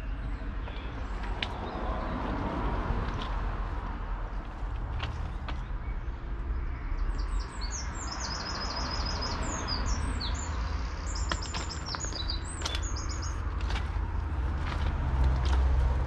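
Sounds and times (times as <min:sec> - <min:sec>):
songbird singing trilled phrases: 0:05.8 - 0:13.4.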